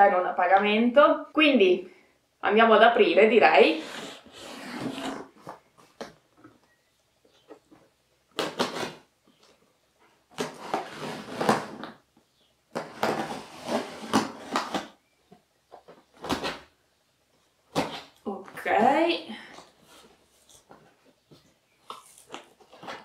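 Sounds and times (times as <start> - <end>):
blade cutting packing tape: 8.4 - 9.1, 10.4 - 12.0.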